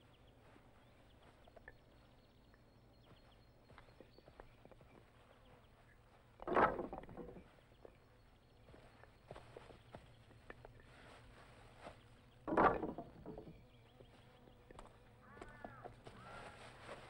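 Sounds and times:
poles clattering against stack: 0:06.4 - 0:07.5, 0:12.5 - 0:13.5
wooden poles knocking together: 0:06.4 - 0:07.5, 0:12.5 - 0:13.6.

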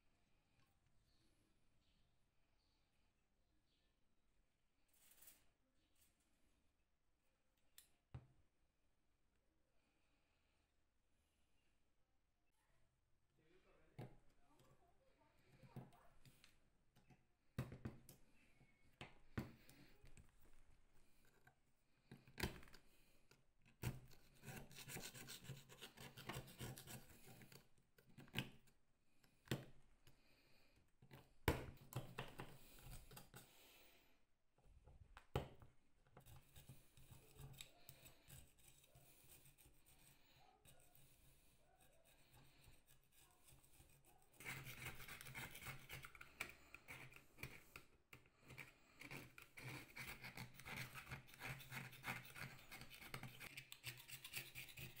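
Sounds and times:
metal pick scratching metal: 0:48.5 - 0:55.0.

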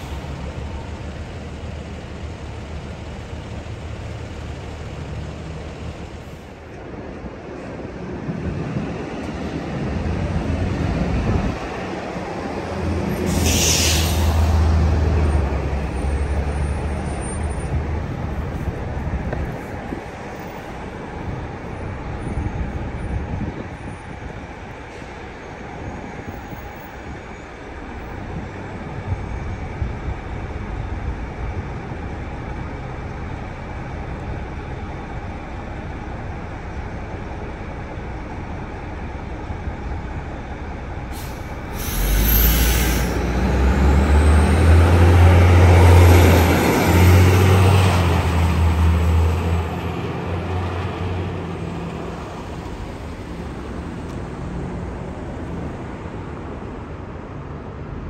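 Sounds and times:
diesel coach engine: 0:00.0 - 0:58.0
air brake hiss: 0:13.2 - 0:14.6, 0:41.1 - 0:43.3.

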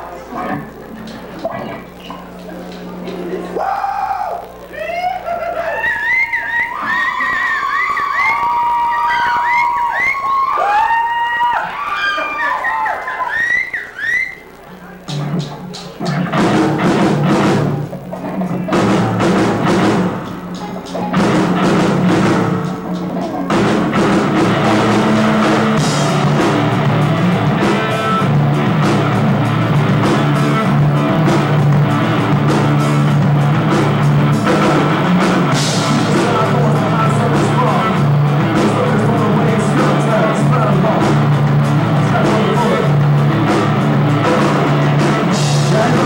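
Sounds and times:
bass guitar: 0:00.0 - 0:11.7, 0:14.5 - 0:46.0
electric guitars: 0:00.0 - 0:46.0
drum kit: 0:14.6 - 0:46.0.

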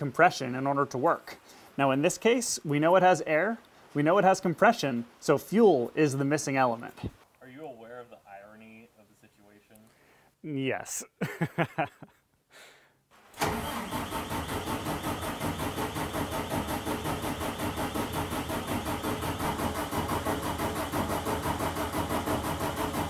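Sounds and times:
diesel engine cranking: 0:13.4 - 0:23.0.

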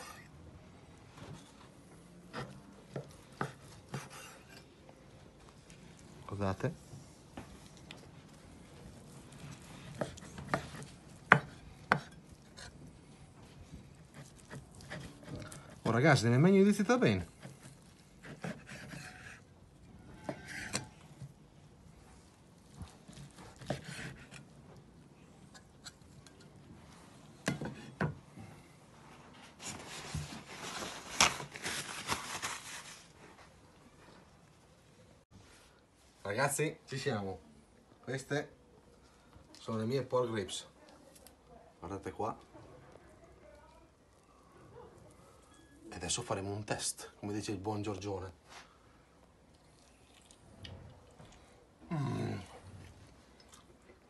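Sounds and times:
knife slicing ribs: 0:17.4 - 0:19.4, 0:23.0 - 0:24.4.

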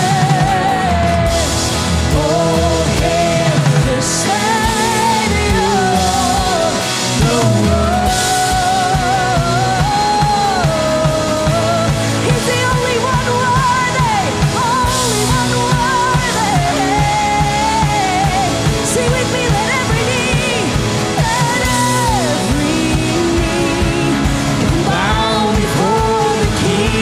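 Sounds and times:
strummed acoustic guitar: 0:00.0 - 0:27.0
woman singing into microphone: 0:00.0 - 0:27.0.

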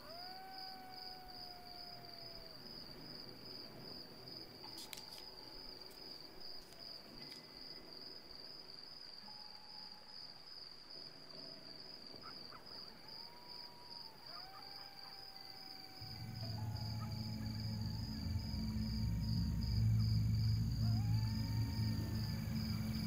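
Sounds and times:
crickets chirping: 0:00.0 - 0:23.0
soft drawn-out bending tones: 0:16.0 - 0:23.0.

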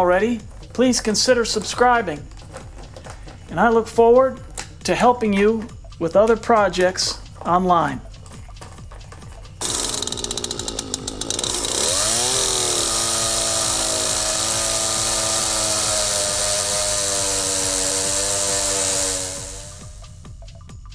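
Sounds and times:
chainsaw cutting log: 0:09.6 - 0:20.1.

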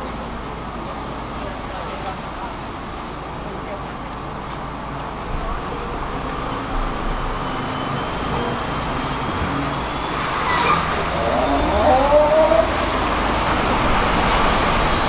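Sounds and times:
bus engine running: 0:00.0 - 0:15.0
air brake hiss: 0:10.2 - 0:10.9.

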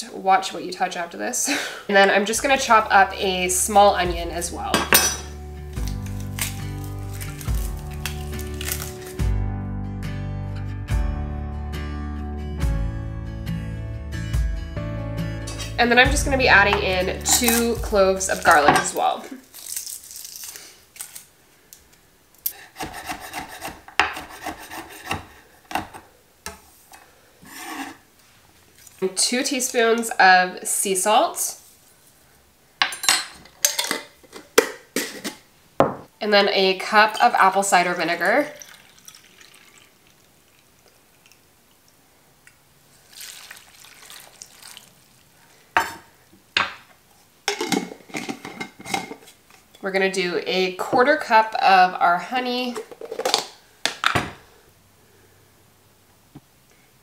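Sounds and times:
knife chopping on wooden board: 0:22.8 - 0:26.0
liquid splashing into a pan: 0:37.7 - 0:41.4, 0:43.0 - 0:45.2.

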